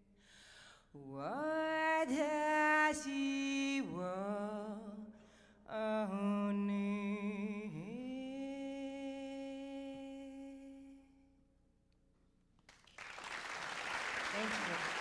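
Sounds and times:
singer breathing: 0.2 - 1.0, 5.2 - 5.7
woman singing unaccompanied: 1.0 - 11.1.

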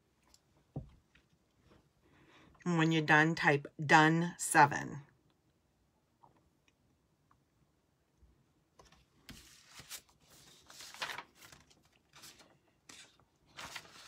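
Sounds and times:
paper rustling and scraping: 8.8 - 14.0.

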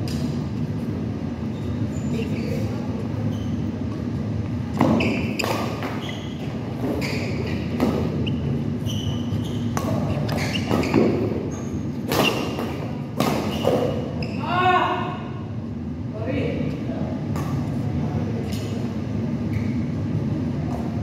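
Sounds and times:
shoes squeaking on court floor: 1.4 - 14.6, 18.4 - 21.0.

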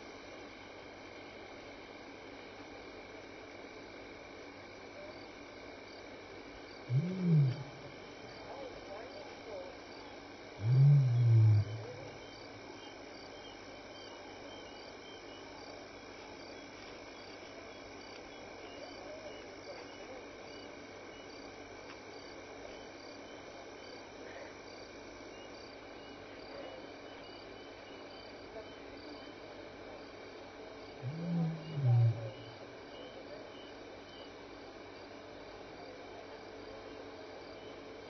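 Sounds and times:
steady hiss: 0.0 - 38.0
insect chirping in high pulses: 6.7 - 9.2, 9.9 - 15.7, 30.8 - 34.3.

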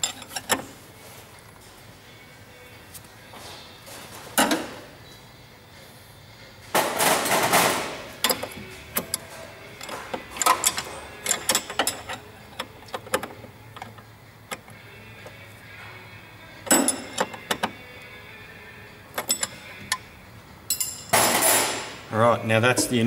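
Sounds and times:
spanner clicking on metal: 8.2 - 14.8, 16.7 - 17.8, 19.1 - 20.1.

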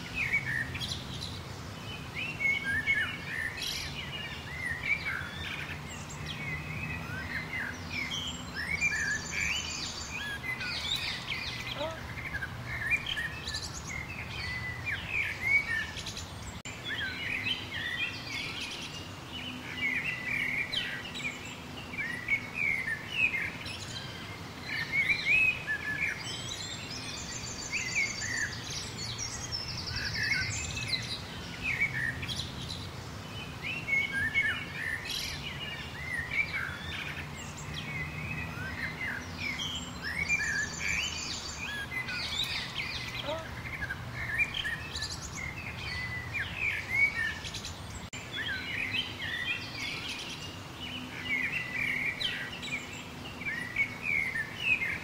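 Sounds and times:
birds singing and chirping: 0.0 - 55.0.

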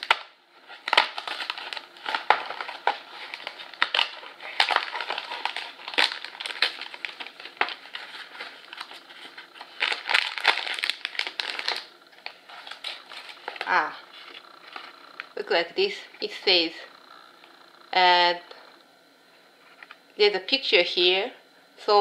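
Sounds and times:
paperboard box tearing: 0.0 - 11.9
foil bag crinkling: 0.0 - 15.4.

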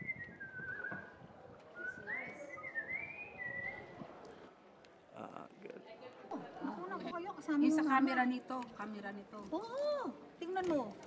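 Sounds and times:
person whistling a tune: 0.0 - 1.1.

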